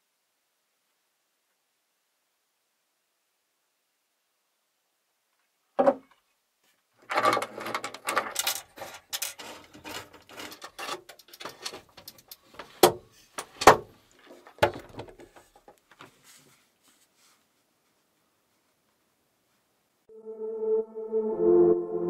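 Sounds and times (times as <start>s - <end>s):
rustling: 14.0s - 19.8s.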